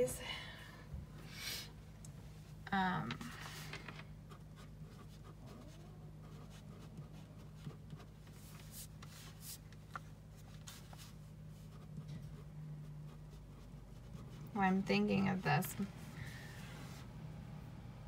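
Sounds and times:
steady low hum: 0.0s - 18.0s
pen scratching on paper: 4.3s - 9.6s, 11.6s - 15.4s.

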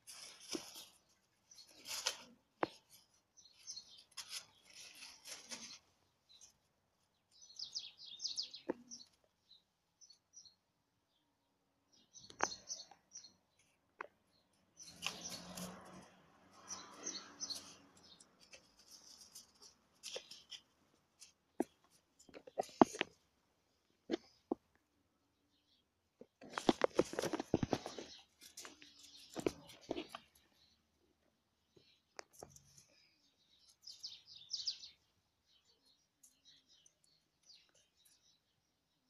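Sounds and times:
rustling: 0.0s - 7.4s, 14.8s - 24.8s, 26.2s - 30.6s
small birds chirping: 0.0s - 39.0s.

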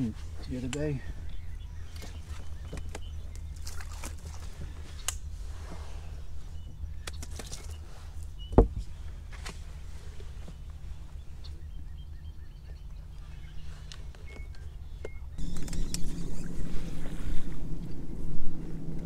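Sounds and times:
boat low rumble: 0.0s - 19.0s
faint bird chirps: 10.2s - 17.5s.

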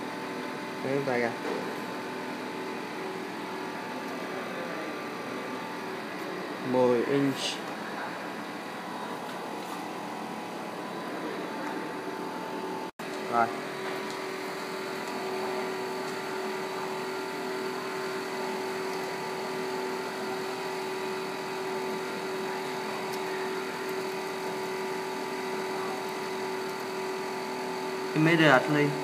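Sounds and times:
machinery hum: 0.0s - 29.0s.

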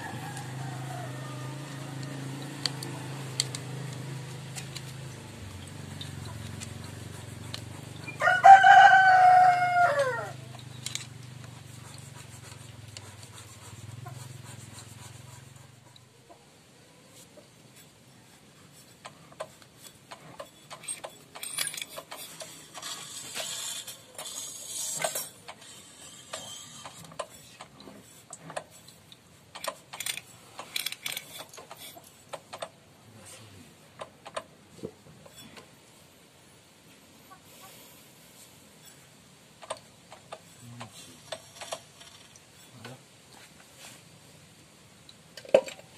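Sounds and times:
metal clinks and rattles: 20.3s - 22.5s.

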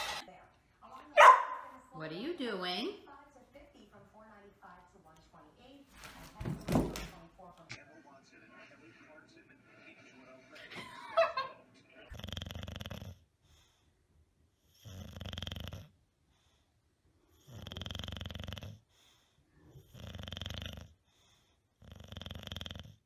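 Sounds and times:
dog snoring: 12.1s - 13.8s, 14.5s - 16.6s, 17.2s - 23.0s.

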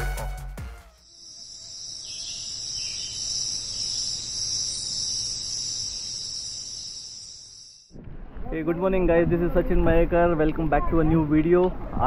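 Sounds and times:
forest insects chorus: 1.0s - 7.9s.

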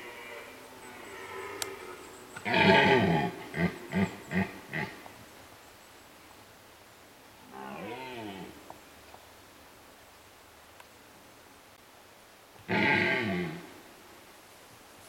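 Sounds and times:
deer stag roaring: 0.0s - 4.9s, 7.4s - 8.6s, 12.7s - 13.7s
deer grunts: 12.7s - 13.7s.

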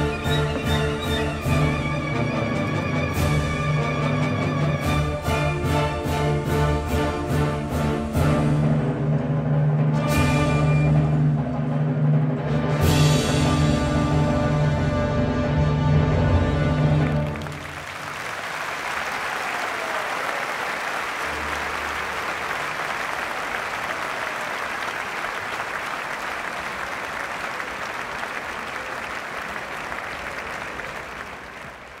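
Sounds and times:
audience applauding: 16.9s - 32.0s.

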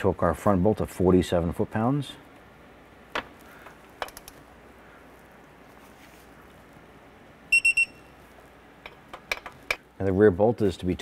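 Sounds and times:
high-pitched beeps: 7.5s - 8.2s.

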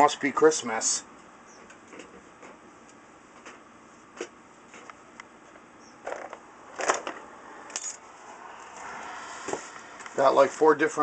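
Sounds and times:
packages knocking and rustling: 6.0s - 7.2s.

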